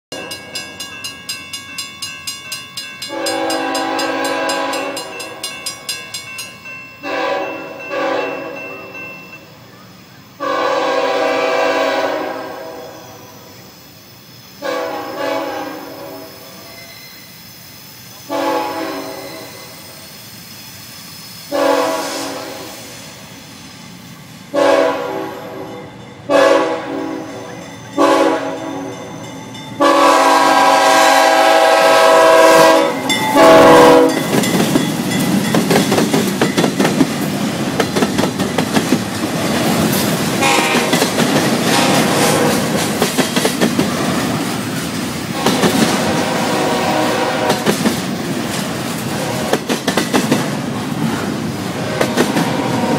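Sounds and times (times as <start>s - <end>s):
freight train rumble: 0.1s - 52.9s
train air horn blasts: 3.1s - 5.4s, 7.0s - 9.0s, 10.4s - 13.5s, 14.6s - 16.8s, 18.2s - 20.0s, 21.5s - 23.1s, 24.5s - 29.2s, 29.8s - 34.4s, 40.4s - 42.8s, 45.3s - 47.8s, 49.1s - 49.6s, 51.7s - 52.9s.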